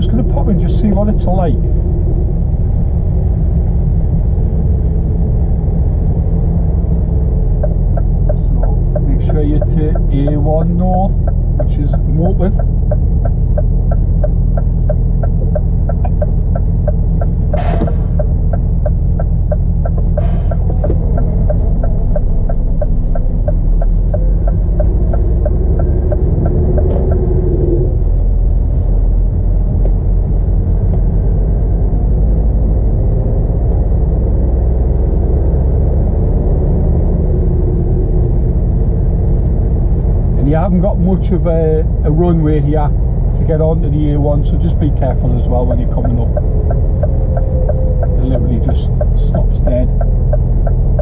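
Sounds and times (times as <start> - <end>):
diesel lorry engine rumble: 0.0 - 51.0
turn indicator ticking: 6.2 - 28.5, 35.0 - 51.0.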